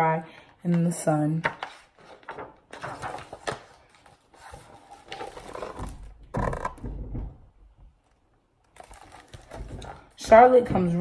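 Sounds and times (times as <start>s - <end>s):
book pages turning: 0.7s - 6.8s, 8.0s - 10.1s.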